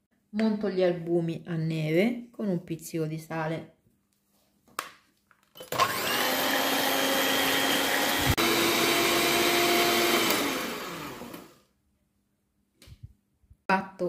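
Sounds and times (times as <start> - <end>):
electric hand mixer whirring: 5.6 - 11.6.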